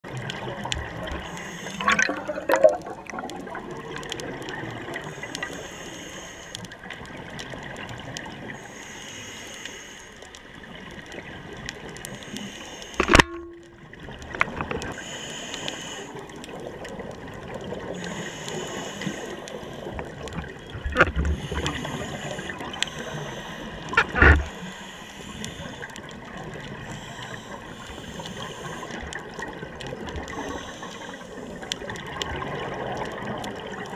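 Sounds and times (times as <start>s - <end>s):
regulator breathing bubbles: 1.2s - 3.1s.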